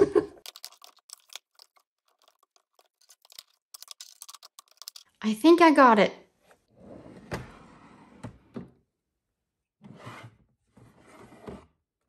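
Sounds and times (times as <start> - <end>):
drawer sliding: 6.7 - 8.7, 9.8 - 11.7.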